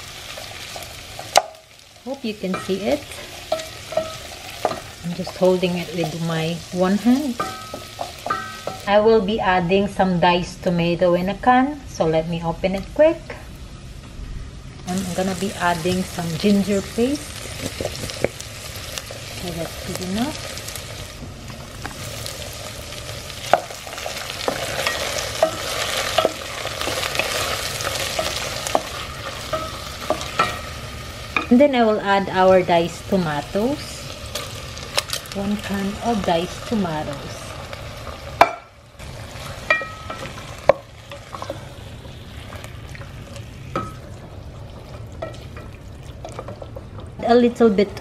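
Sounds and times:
vegetables sizzling in oil: 0:00.0 - 0:48.0.

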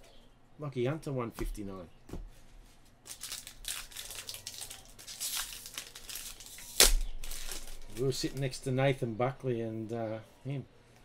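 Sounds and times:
wrapper tearing and crinkling: 0:03.0 - 0:08.5.

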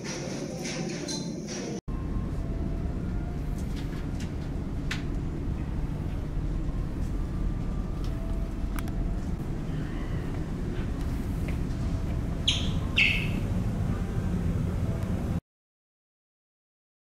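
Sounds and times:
ship engine rumble: 0:01.9 - 0:15.4.

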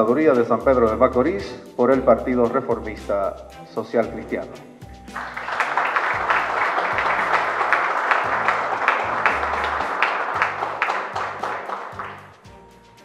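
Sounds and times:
background music: 0:00.0 - 0:13.0
audience applauding: 0:05.1 - 0:12.5.

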